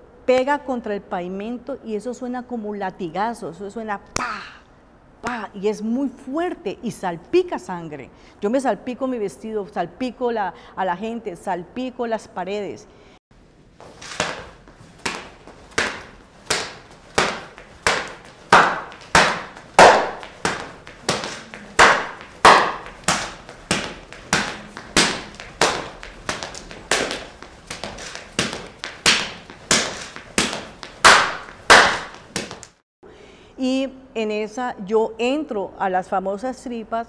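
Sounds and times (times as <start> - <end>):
skipping rope slapping floor: 13.9 - 32.8.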